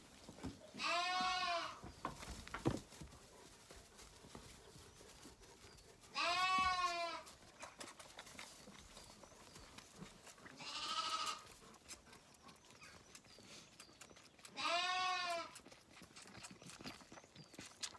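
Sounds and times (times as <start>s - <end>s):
lamb bleating: 0.8s - 1.8s, 6.1s - 7.3s, 10.6s - 11.5s, 14.5s - 15.6s.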